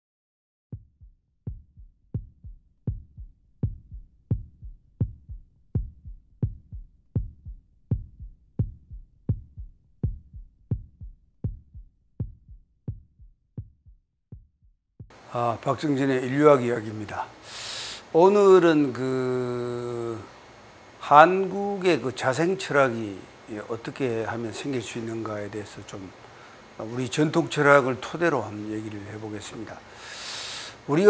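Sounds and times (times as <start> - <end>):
heartbeat-like double thump: 0.7 - 15.2.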